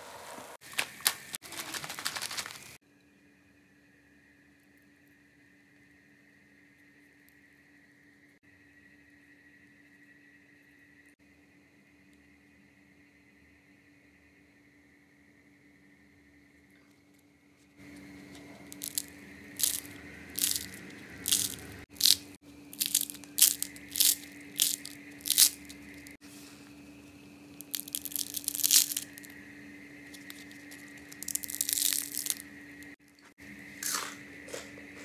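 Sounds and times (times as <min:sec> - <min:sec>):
faint steady hum: 0:00.0 - 0:35.0
fried potato crunching: 0:00.7 - 0:02.6, 0:18.7 - 0:26.2, 0:27.6 - 0:29.4, 0:30.1 - 0:32.5, 0:33.8 - 0:35.0.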